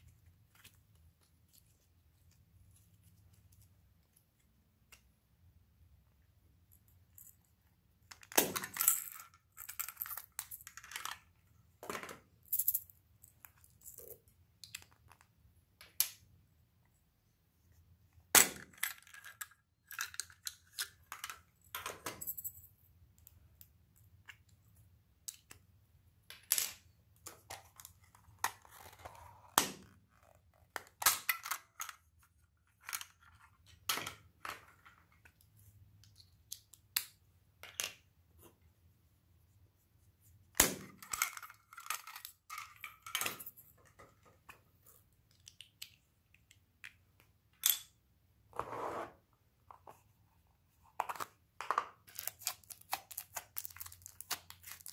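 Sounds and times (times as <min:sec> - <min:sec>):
plastic packets crinkling: 0:52.1 - 0:54.9.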